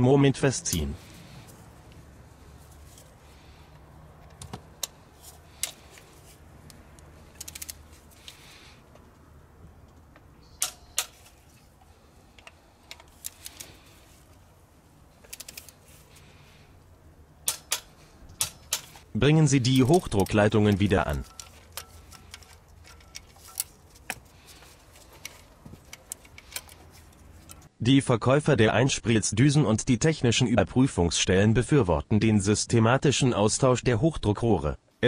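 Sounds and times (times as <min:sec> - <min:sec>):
ratchet wrench clicking: 0:07.3 - 0:08.4.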